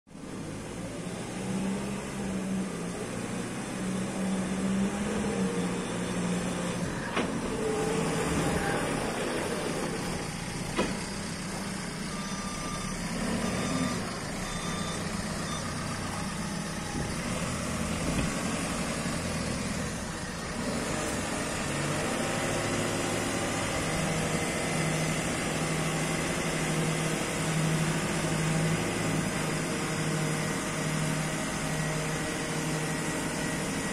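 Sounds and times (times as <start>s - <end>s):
diesel engine running: 0.1s - 33.9s
hydraulics whirring: 2.0s - 33.9s
reversing alarm beeping: 4.0s - 7.0s, 10.2s - 17.2s.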